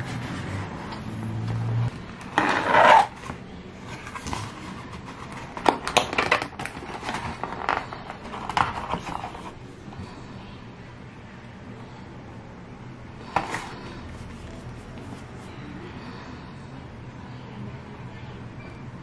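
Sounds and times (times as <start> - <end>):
cardboard rustling and scraping: 2.2 - 9.6, 13.3 - 15.6.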